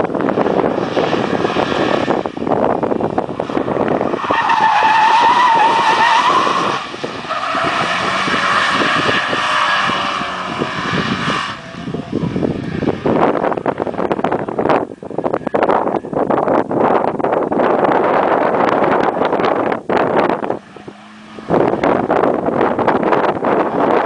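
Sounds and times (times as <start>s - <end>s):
car engine under power: 0.0s - 24.0s
tyres squealing: 4.2s - 10.2s.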